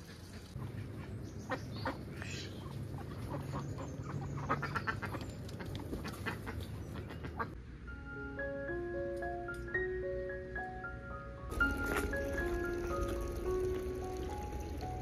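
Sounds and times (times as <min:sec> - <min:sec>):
animal calls and clicks: 0:00.0 - 0:07.6
low steady hum: 0:05.2 - 0:15.0.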